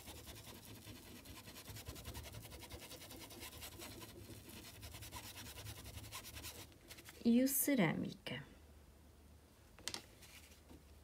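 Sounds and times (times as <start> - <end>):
paintbrush scratching on fabric: 0.0 - 7.3.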